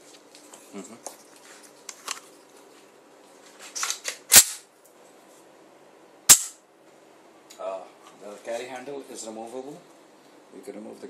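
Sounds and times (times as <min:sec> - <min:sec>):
sharp metallic clacks: 0:06.3 - 0:06.6.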